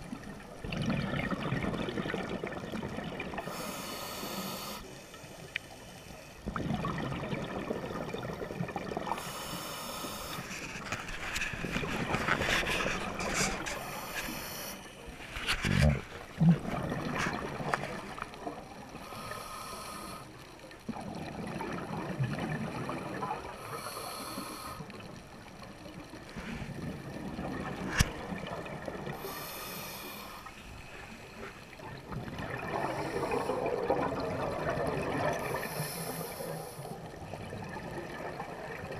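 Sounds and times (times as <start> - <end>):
exhaled air bubbling: 0.0 - 4.5, 6.4 - 19.5, 20.7 - 38.9
regulator hissing inhale: 3.4 - 6.4, 9.2 - 10.7, 12.8 - 15.0, 19.0 - 20.4, 23.6 - 25.0, 29.2 - 31.6, 35.4 - 37.1.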